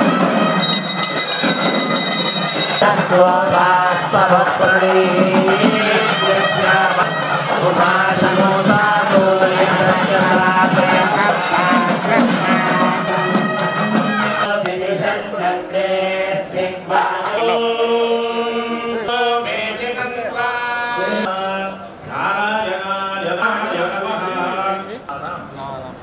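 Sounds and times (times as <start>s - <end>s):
chant-like singing: 2.8s - 25.1s.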